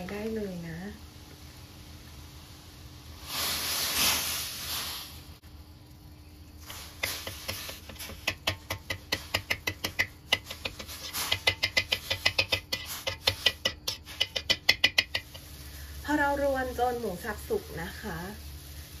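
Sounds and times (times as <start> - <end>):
utensil scraping a pan: 6.6 - 15.9.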